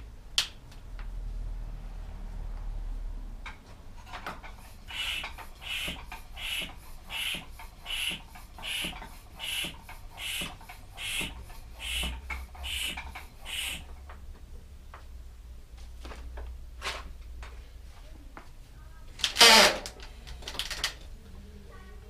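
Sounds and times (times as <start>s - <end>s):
bicycle pump squeaky hiss: 4.9s - 13.9s.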